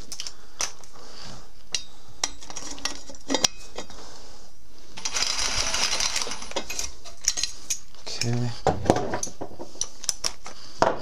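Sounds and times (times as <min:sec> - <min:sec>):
metal hand tools clinking: 0:05.0 - 0:07.8.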